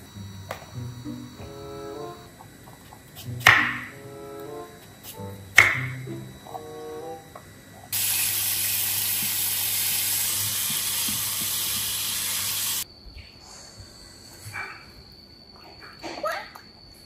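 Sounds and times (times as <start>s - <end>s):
steady low hum: 0.0s - 16.1s
tap water running into sink: 8.0s - 12.8s.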